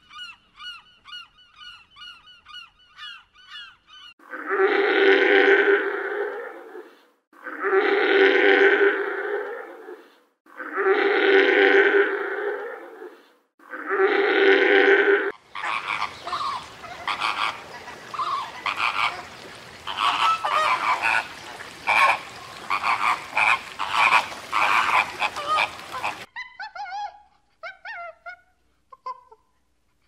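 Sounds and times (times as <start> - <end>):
fur seal calling: 9.4 - 29.4
flamingos honking: 14.0 - 26.3.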